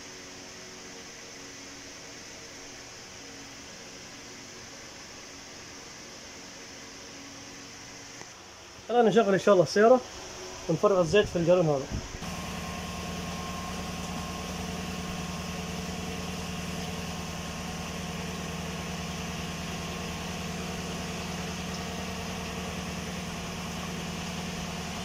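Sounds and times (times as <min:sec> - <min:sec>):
car engine idling: 0:12.2 - 0:25.0.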